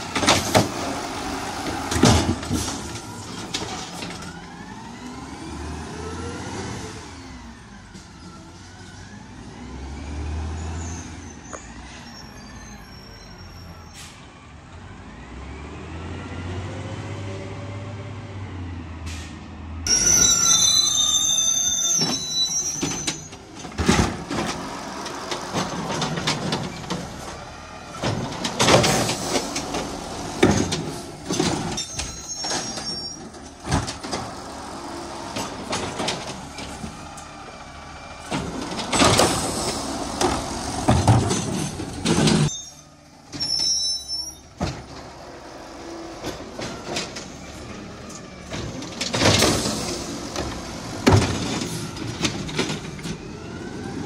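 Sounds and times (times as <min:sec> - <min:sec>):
carts banging and knocking: 0:00.0 - 0:04.4, 0:19.9 - 0:43.8, 0:44.4 - 0:54.0
high squealing whine: 0:19.9 - 0:23.4.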